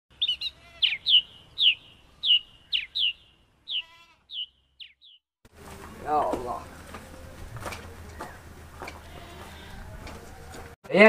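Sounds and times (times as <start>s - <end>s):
bird chirping: 0.1s - 5.3s.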